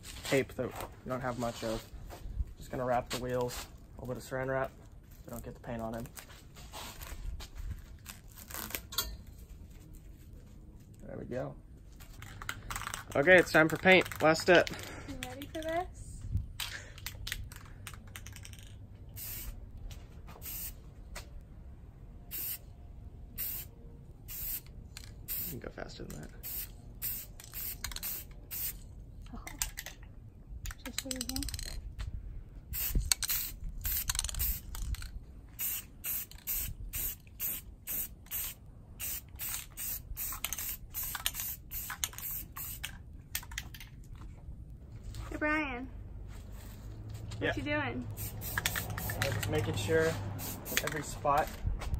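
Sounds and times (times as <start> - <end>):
spray paint can hissing: 19.1 - 19.6, 20.4 - 20.8, 22.3 - 22.7, 23.4 - 25.6, 26.3 - 28.9, 32.7 - 43.0, 48.1 - 51.1.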